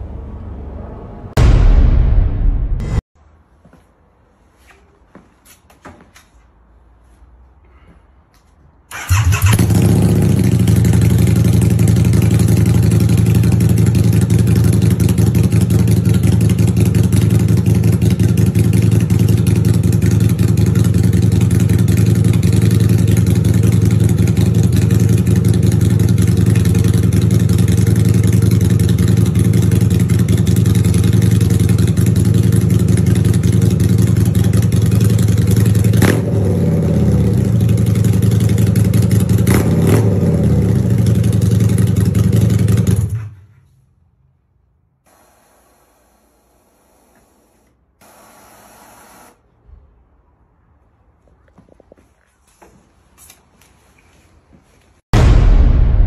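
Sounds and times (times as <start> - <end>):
motorcycle engine starting and idling: 8.9 - 43.7.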